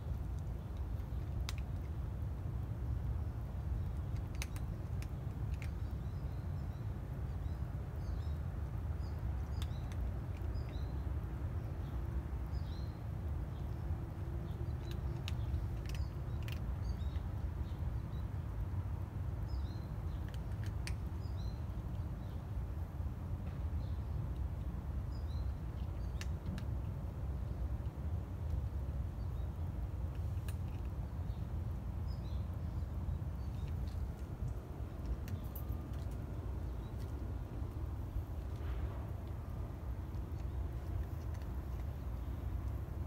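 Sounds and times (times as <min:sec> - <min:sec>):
small birds chirping: 0:00.0 - 0:43.0
steady low rumble: 0:00.0 - 0:43.0
sharp faint clicks: 0:00.1 - 0:02.0, 0:03.8 - 0:06.1, 0:25.8 - 0:26.9, 0:30.0 - 0:31.0, 0:33.4 - 0:42.8.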